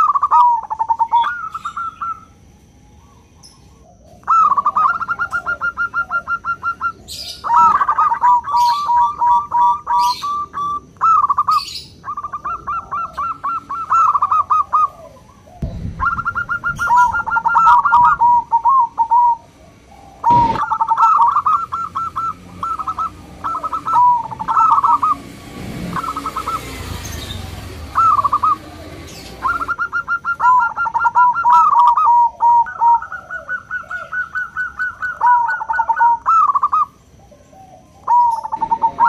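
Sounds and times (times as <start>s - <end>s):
doves cooing: 0.0s - 39.0s
dull thump: 15.6s - 18.1s, 20.3s - 20.6s
sharp knock: 15.6s - 18.1s, 20.3s - 20.7s.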